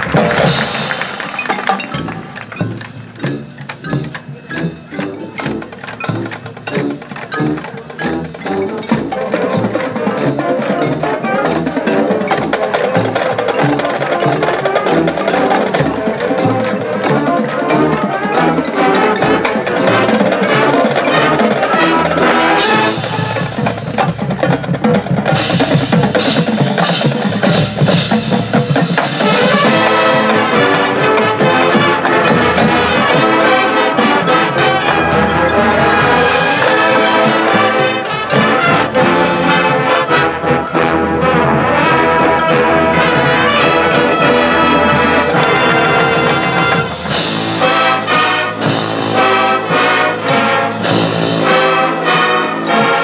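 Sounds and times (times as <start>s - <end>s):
marching band playing: 0.0s - 53.0s
quick percussion hits: 0.0s - 53.0s
sustained brass chords: 29.3s - 53.0s.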